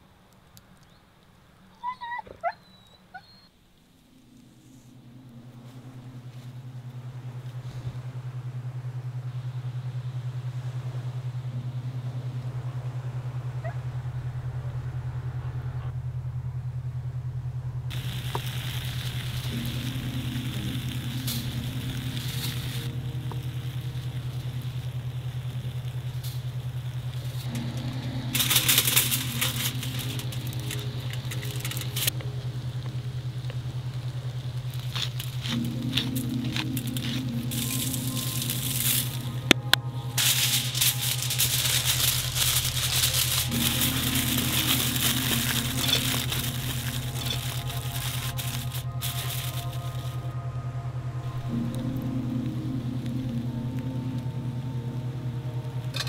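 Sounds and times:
campfire crackling and hissing: 0.0 - 2.0, 3.5 - 16.4, 17.8 - 56.0
steady low hum: 3.5 - 56.0
aluminium foil crinkling: 17.9 - 50.3.

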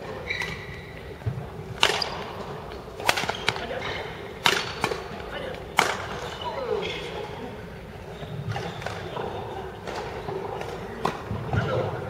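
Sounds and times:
shoes squeaking on court: 0.0 - 7.3, 8.0 - 12.0
rackets hitting shuttlecock: 1.2 - 6.3, 8.5 - 11.9.

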